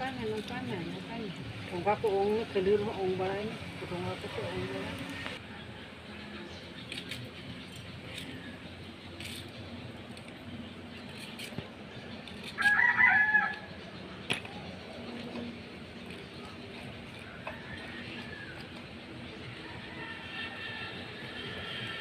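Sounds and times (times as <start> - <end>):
rooster crowing: 12.6 - 13.7, 17.2 - 18.7, 19.5 - 22.0.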